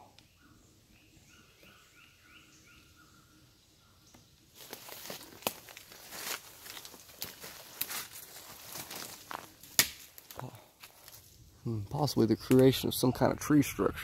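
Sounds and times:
bird singing: 0:00.0 - 0:04.9
twigs snapping: 0:04.1 - 0:11.3
leaves crunching underfoot: 0:04.5 - 0:11.4.

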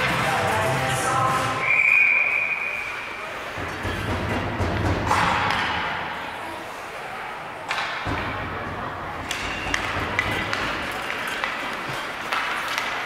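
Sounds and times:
hockey sticks and puck knocking: 0:03.5 - 0:06.1, 0:07.6 - 0:13.0.

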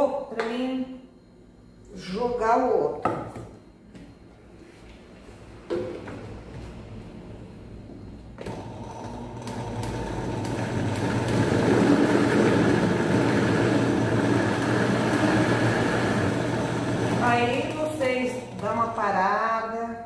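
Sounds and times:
blender motor grinding: 0:08.4 - 0:19.0.

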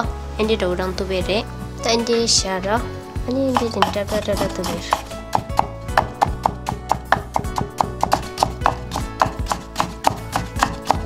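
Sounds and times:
background music: 0:00.0 - 0:11.0
knife chopping on wooden board: 0:03.4 - 0:11.0.

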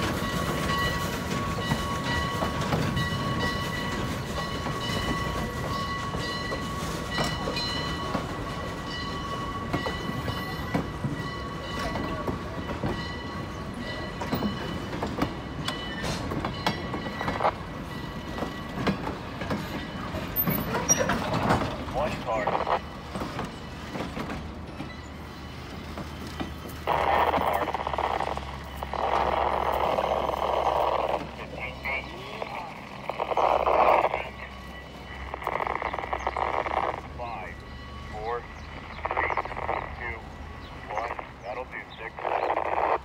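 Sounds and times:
wheels clanking and knocking: 0:00.0 - 0:21.9
train rumbling past: 0:00.0 - 0:43.0
high-pitched whine: 0:26.8 - 0:43.0.

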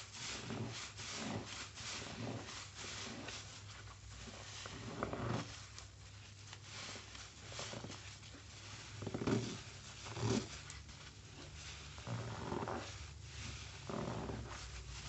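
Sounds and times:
sponge squelching: 0:00.0 - 0:15.0.

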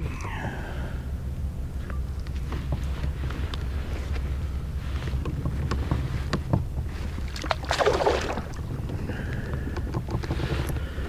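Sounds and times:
wind rumble on microphone: 0:00.0 - 0:11.0
water splash: 0:07.3 - 0:08.7.

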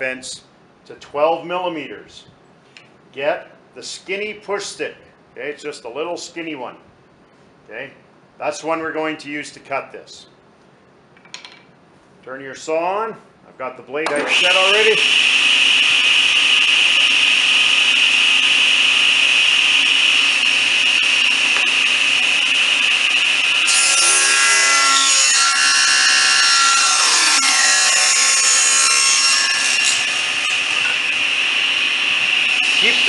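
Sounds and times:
saw ripping wooden board: 0:14.1 - 0:31.1
table saw whining: 0:14.1 - 0:33.0.

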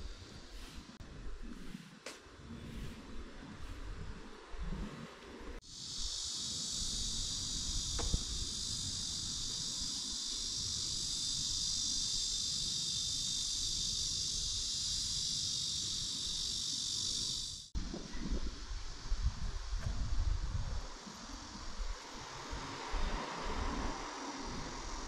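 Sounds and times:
cicadas singing: 0:05.6 - 0:25.0.

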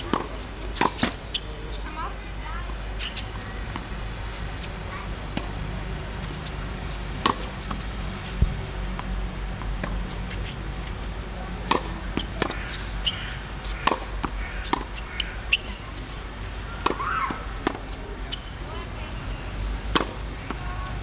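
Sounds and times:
tennis racket hitting ball: 0:00.0 - 0:01.2, 0:06.2 - 0:18.0, 0:19.9 - 0:20.9
steady low hum: 0:02.9 - 0:16.8.

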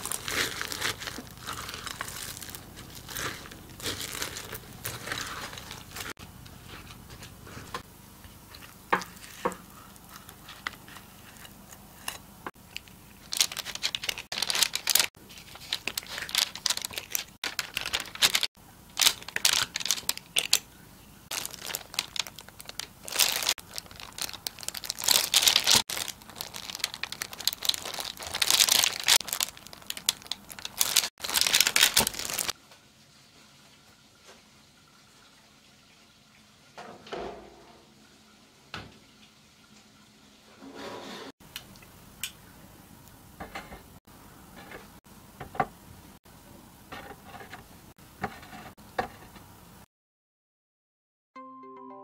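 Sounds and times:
plastic glove and paper crinkling: 0:00.0 - 0:20.7, 0:21.3 - 0:32.6.

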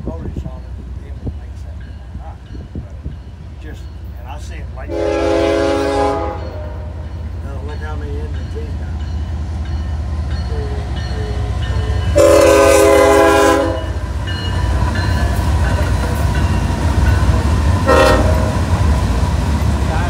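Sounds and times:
freight locomotives rumbling past: 0:00.0 - 0:20.0
locomotive horn blasts: 0:04.9 - 0:06.9, 0:12.0 - 0:14.0, 0:17.8 - 0:18.6.

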